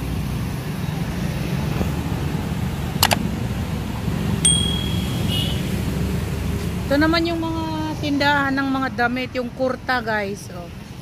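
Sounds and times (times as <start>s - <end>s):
low rumble of street traffic: 0.0s - 11.0s
sharp click: 3.0s - 3.2s
bright bell ding: 4.4s - 5.6s.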